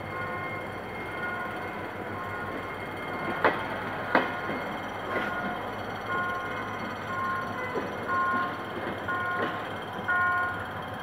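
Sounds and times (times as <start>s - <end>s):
train rumble: 0.0s - 11.0s
train wheel knocks: 2.4s - 10.4s.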